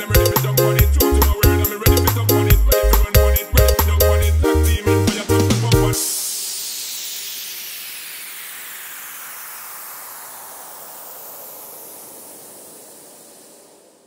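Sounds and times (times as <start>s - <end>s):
white-noise sweep: 2.7s - 14.0s.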